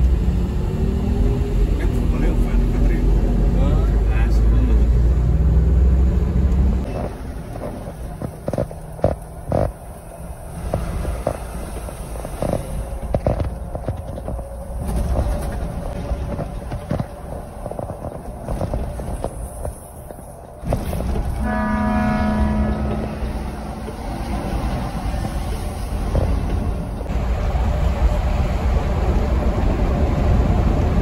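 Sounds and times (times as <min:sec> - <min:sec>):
coach engine and road rumble: 0:00.0 - 0:31.0
knocks and rattles: 0:12.3 - 0:21.4
vehicle horn: 0:21.4 - 0:23.7.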